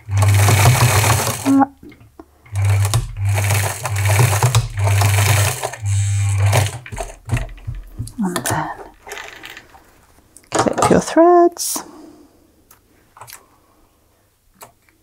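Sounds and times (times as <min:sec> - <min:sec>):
electric sewing machine stitching: 0:00.0 - 0:01.7, 0:02.5 - 0:09.1.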